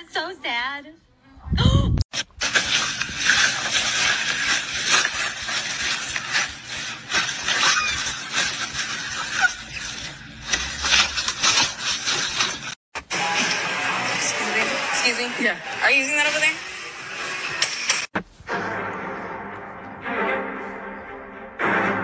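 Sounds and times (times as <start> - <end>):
cardboard box crinkling and scraping: 2.2 - 12.8.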